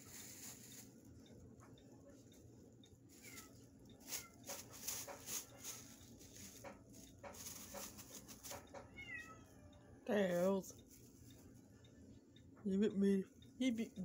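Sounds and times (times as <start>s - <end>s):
plastic bag crinkling: 0.0s - 1.1s, 4.0s - 8.8s
kitten mewing: 8.9s - 9.5s.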